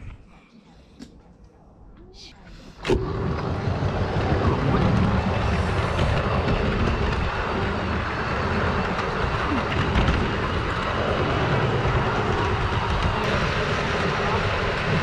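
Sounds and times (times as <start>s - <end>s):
model train wheels rumbling: 2.8s - 15.0s
motor drone: 2.8s - 15.0s.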